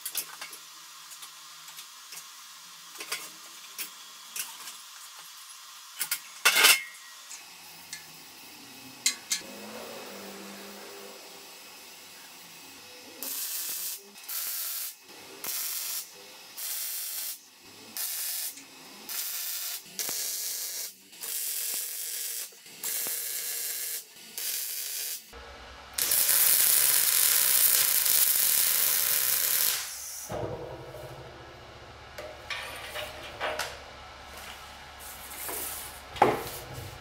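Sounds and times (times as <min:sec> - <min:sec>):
welder humming: 0:06.8 - 0:37.0
welding arc crackling: 0:07.2 - 0:30.4.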